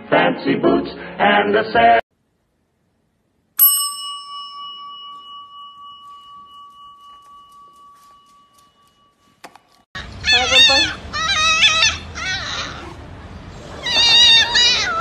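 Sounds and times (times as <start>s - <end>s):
desk service bell ding: 3.6s - 9.3s.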